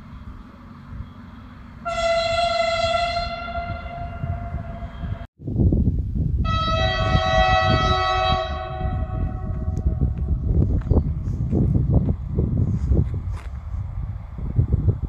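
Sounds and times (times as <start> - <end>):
train horn blasts: 1.8 - 5.3, 6.4 - 10.2
wind noise: 1.8 - 15.0.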